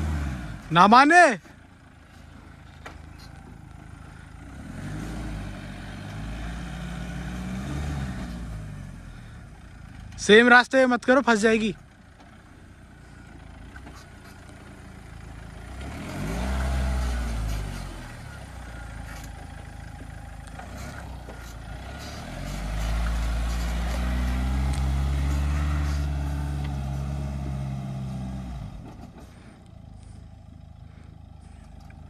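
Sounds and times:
engine revving under load: 0.0s - 0.9s, 4.0s - 10.2s, 13.7s - 30.2s.

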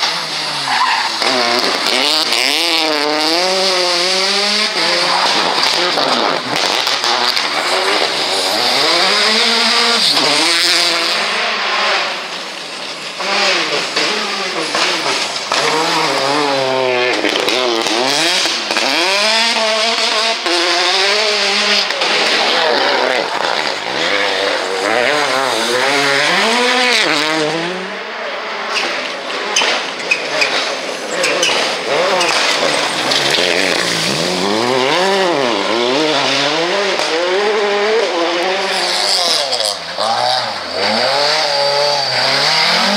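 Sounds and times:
tyres on loose dirt: 0.0s - 27.9s, 28.5s - 42.9s
rally car engines revving: 0.0s - 42.9s.

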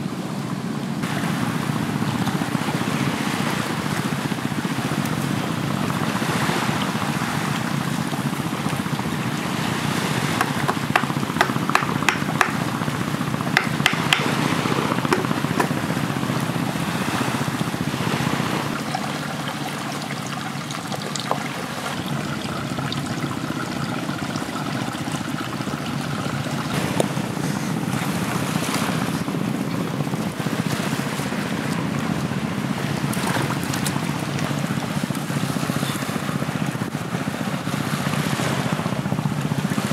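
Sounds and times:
waves breaking on beach: 0.0s - 39.9s
wind on microphone: 0.9s - 19.4s, 21.1s - 39.9s.

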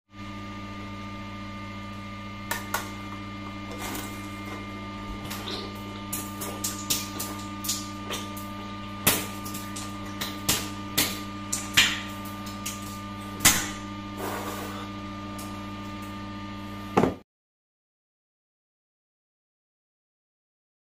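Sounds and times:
steady low hum: 0.1s - 17.2s
wet spitting spatter: 5.2s - 8.5s, 14.2s - 14.9s.

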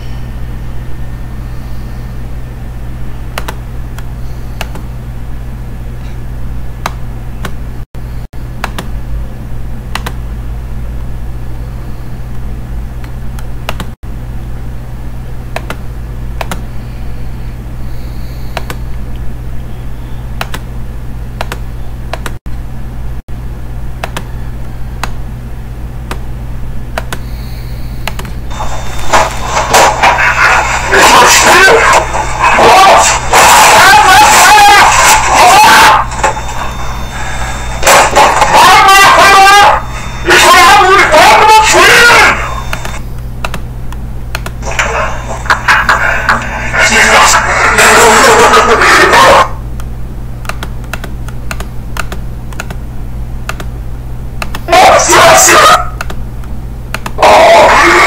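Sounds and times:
low hum: 0.0s - 38.6s
mouse and keyboard clicks: 3.4s - 3.6s, 4.6s - 4.9s, 8.6s - 8.9s, 10.0s - 10.2s, 15.6s - 15.8s, 16.4s - 16.7s, 18.5s - 18.8s, 20.4s - 20.7s, 21.4s - 22.4s, 24.0s - 24.3s, 27.0s - 27.3s, 28.0s - 28.4s, 43.4s - 43.6s, 50.4s - 52.8s, 53.5s - 53.7s, 54.4s - 54.7s, 56.9s - 57.2s
video audio playing: 27.0s - 43.7s, 44.4s - 49.9s, 54.4s - 56.2s, 57.0s - 58.0s.

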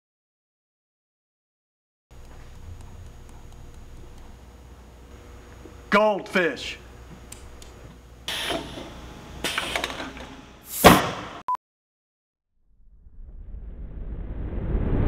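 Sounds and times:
low rumble: 12.6s - 15.0s.

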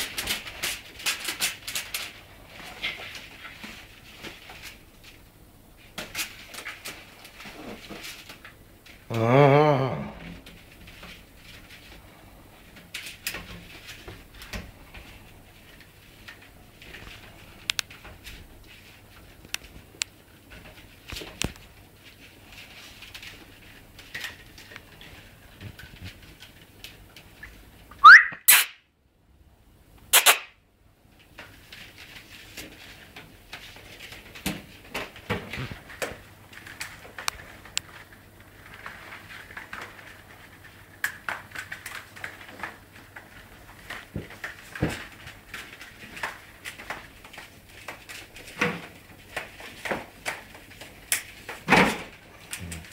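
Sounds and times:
sharp crack: 28.0s - 28.8s, 30.1s - 30.6s
short loud squeak: 28.0s - 28.8s, 30.1s - 30.5s.

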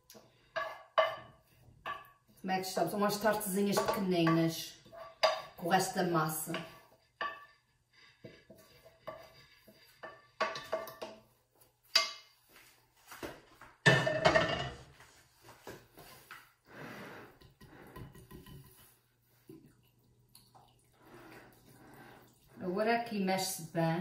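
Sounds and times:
kitchenware clatter: 0.5s - 2.3s, 8.4s - 11.3s, 11.9s - 12.4s, 13.8s - 15.0s, 17.4s - 19.0s
spatula scraping glass bowl: 3.2s - 11.0s
whisk stirring in glass bowl: 6.4s - 11.1s.

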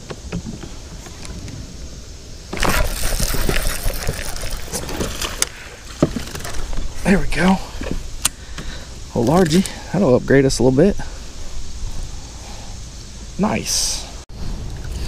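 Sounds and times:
fish splashing and thrashing: 2.4s - 6.9s
sharp splash or knock: 2.5s - 5.4s
fishing reel clicking: 2.6s - 5.5s.

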